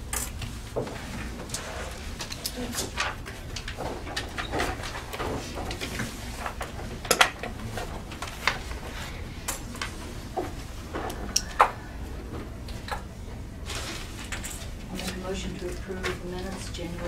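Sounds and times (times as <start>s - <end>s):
papers rustling: 13.6s - 17.0s.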